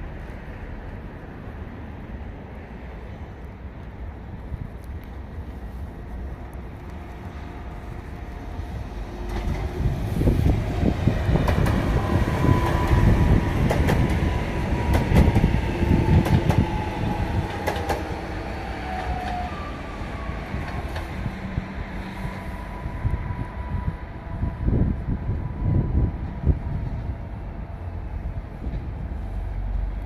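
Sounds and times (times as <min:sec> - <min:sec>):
passenger train passing: 0:00.0 - 0:30.0.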